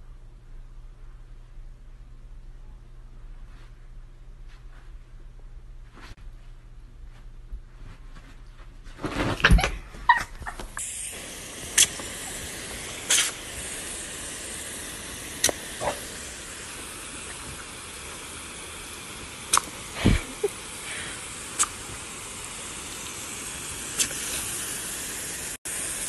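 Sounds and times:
garden hose nozzle hissing: 10.5s - 26.0s.

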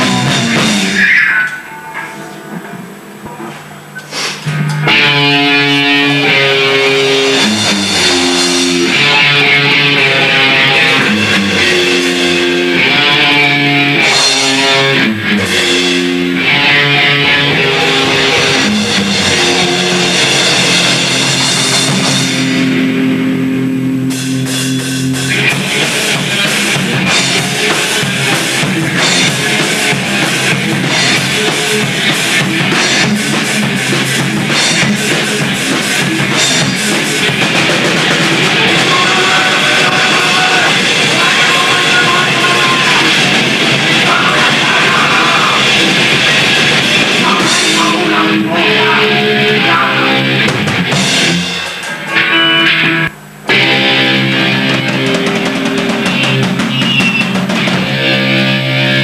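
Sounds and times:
fast drums: 0.0s - 23.3s, 24.0s - 59.0s
electric guitar riff: 0.0s - 59.0s.

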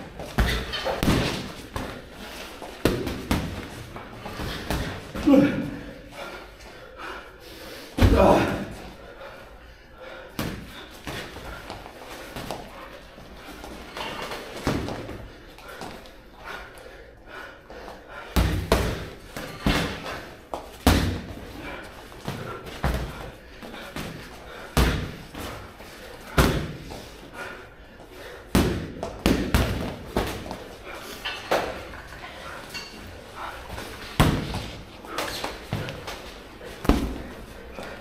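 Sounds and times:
boxing gloves punching: 0.0s - 5.4s, 18.4s - 26.9s, 28.5s - 30.7s, 34.2s - 38.0s.

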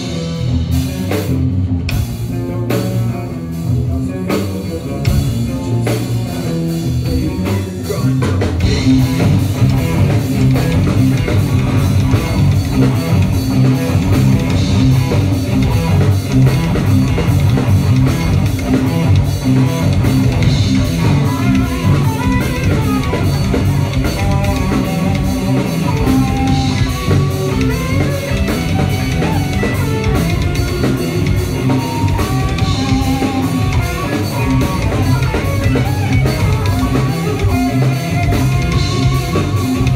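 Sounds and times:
bass guitar: 0.0s - 39.9s
drum kit: 0.0s - 39.9s
electric guitars: 0.0s - 39.9s.

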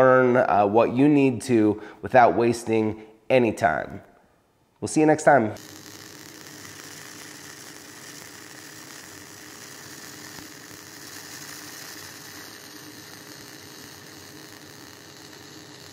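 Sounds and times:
welding arc hissing and buzzing: 5.6s - 15.9s.

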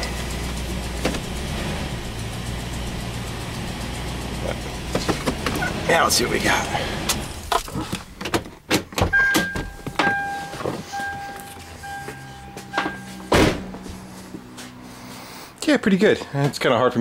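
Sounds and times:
clicks and knocks in car cab: 7.5s - 10.9s
car warning chime beeping: 9.1s - 13.3s
car door shutting thud: 13.3s - 13.8s.

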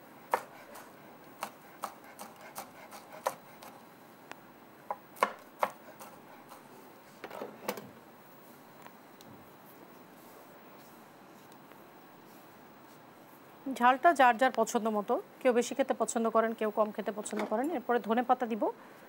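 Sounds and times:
knife chopping on wooden board: 0.3s - 3.7s, 5.2s - 6.2s.

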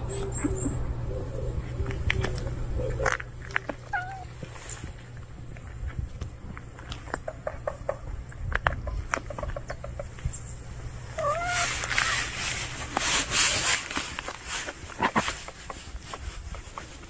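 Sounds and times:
rustling noise: 1.5s - 7.6s, 11.1s - 17.0s
cat meowing: 3.8s - 4.3s, 11.2s - 12.3s.

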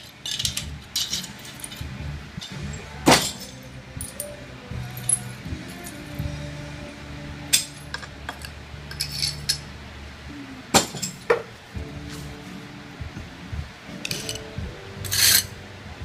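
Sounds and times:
broken tile pieces clinking: 0.0s - 1.8s, 7.5s - 9.6s.

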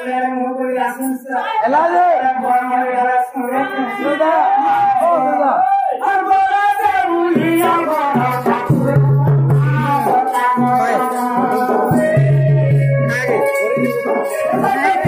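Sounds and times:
jingling rattling percussion: 6.1s - 15.0s
barrel drum: 7.3s - 15.0s
person singing wavering notes: 8.1s - 15.0s.

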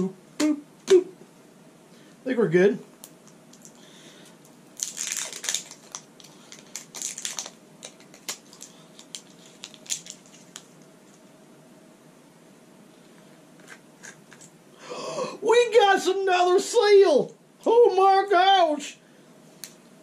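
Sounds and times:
plastic wrap crinkling: 4.4s - 11.3s.

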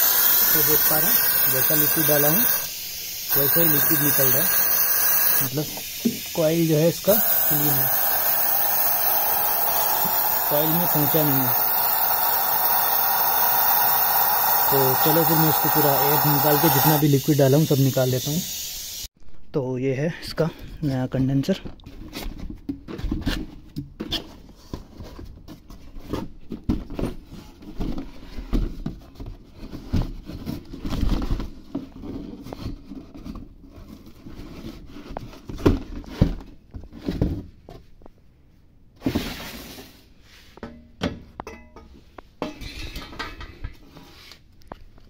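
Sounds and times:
cardboard and foam rustling: 21.9s - 38.2s.

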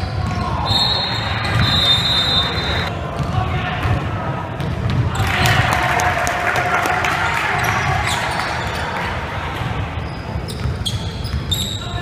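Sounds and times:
sneaker squeaks: 0.0s - 3.3s, 7.6s - 9.0s, 10.0s - 12.0s
crowd chatter: 0.0s - 12.0s.

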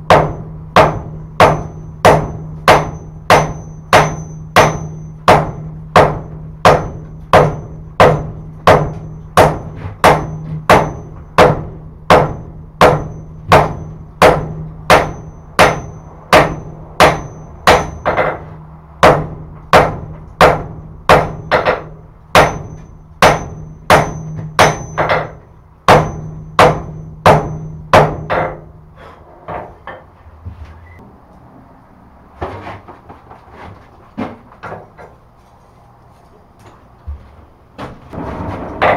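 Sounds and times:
hammer striking on anvil: 0.0s - 28.8s
steady low hum: 0.0s - 38.9s.

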